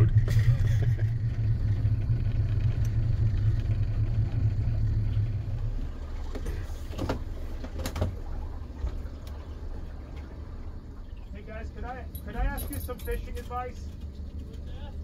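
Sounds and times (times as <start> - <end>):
outboard motor droning: 0.0 - 15.0.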